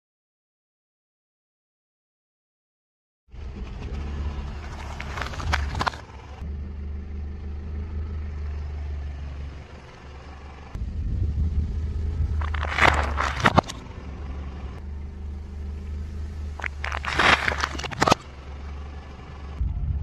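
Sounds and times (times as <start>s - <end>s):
car engine running at low speed: 3.3s - 20.0s
tyre crushing food with crunches: 4.7s - 6.0s, 12.4s - 13.8s, 16.6s - 18.2s.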